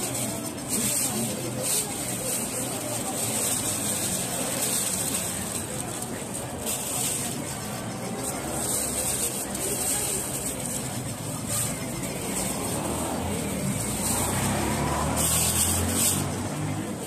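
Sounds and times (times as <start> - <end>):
vehicle engine rumble: 0.0 - 17.0
cars driving past: 11.1 - 17.0.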